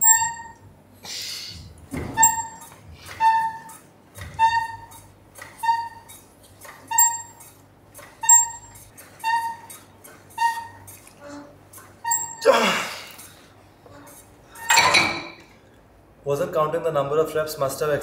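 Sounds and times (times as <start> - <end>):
exercise machine squeaking: 0.0 - 0.6, 2.0 - 12.5, 13.2 - 15.5.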